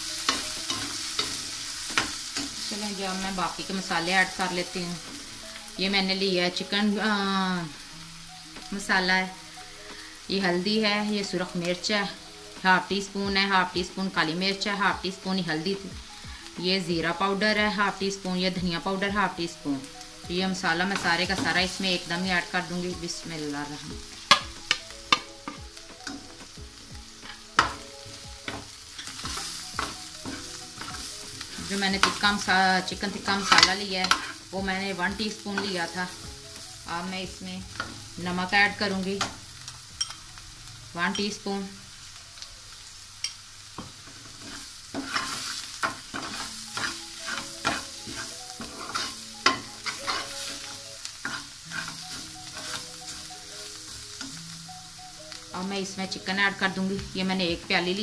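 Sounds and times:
onions sizzling in oil: 0:00.0 - 0:58.0
steel spoon clinking on pot: 0:40.0 - 0:40.2
steel spoon scraping a pot: 0:44.4 - 0:50.6, 0:51.2 - 0:52.9.

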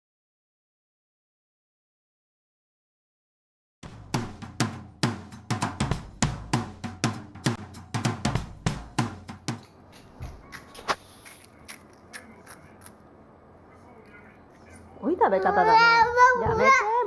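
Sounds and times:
kick and snare drum beat: 0:03.8 - 0:10.5.

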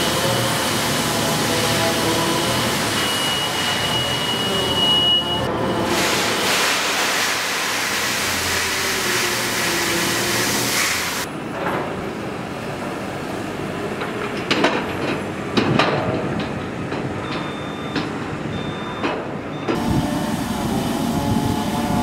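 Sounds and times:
engine running: 0:19.5 - 0:22.0.

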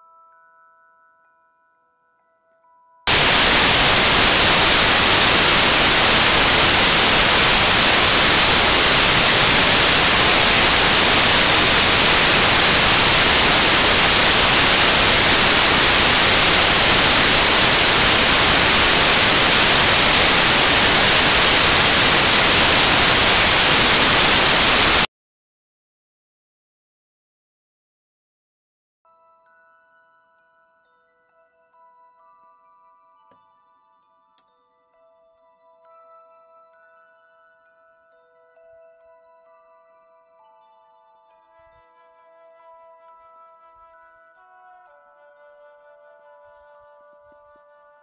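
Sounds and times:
white noise static: 0:03.1 - 0:25.1.

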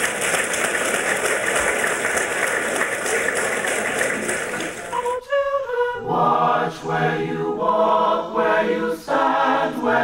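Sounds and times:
large audience applauding: 0:00.0 - 0:05.2.

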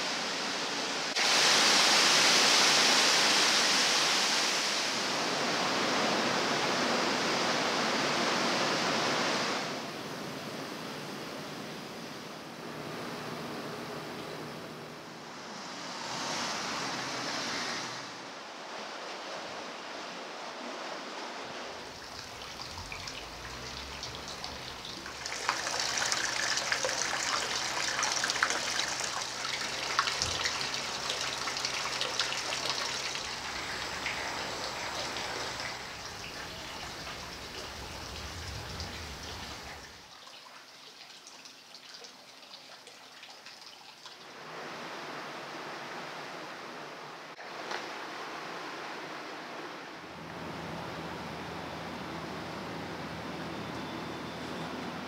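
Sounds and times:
flowing water: 0:00.0 - 0:55.0
water trickling from spout: 0:21.9 - 0:44.2.

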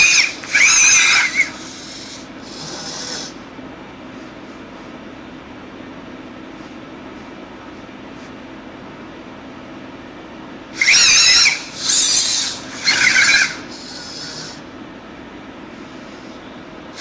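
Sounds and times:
servo motors whining: 0:00.0 - 0:03.3, 0:10.8 - 0:14.6.

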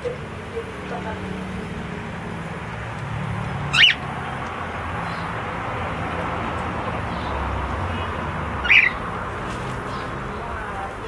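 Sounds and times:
cockatiel high calls: 0:03.7 - 0:04.0, 0:08.6 - 0:09.0.

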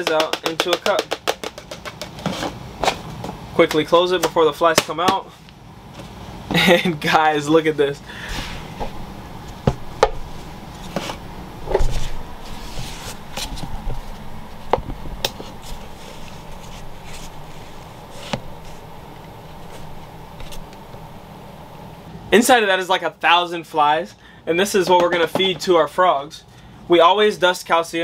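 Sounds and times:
plastic cup clicks and knocks: 0:00.0 - 0:02.2
steady low hum: 0:00.0 - 0:28.0.

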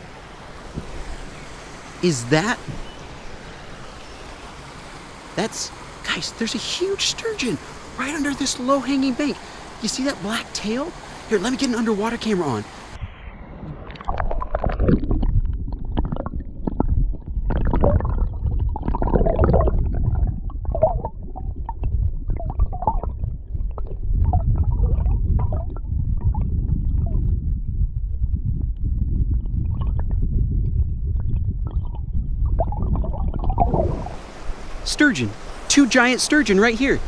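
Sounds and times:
gurgling and bubbly squeaks: 0:13.0 - 0:27.9, 0:28.9 - 0:34.3
muffled underwater rumble: 0:13.0 - 0:34.7.

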